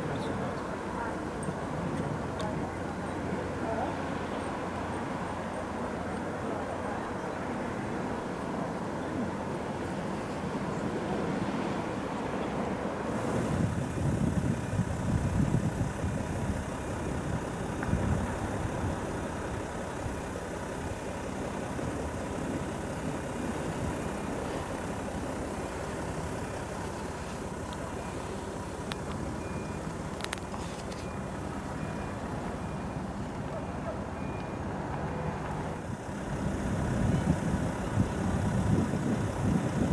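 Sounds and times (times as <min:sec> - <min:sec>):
low outdoor rumble: 0:00.0 - 0:39.9
faint short high beeps: 0:29.4 - 0:29.9, 0:30.7 - 0:34.6.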